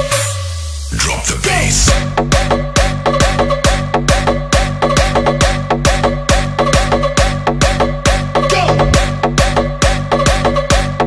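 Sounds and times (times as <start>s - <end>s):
dance music with kick drum: 0.0s - 11.0s.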